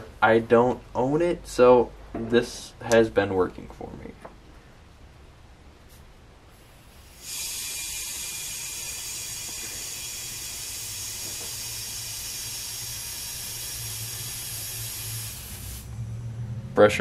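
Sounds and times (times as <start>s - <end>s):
compressed air hissing into tank: 6.5s - 16.0s.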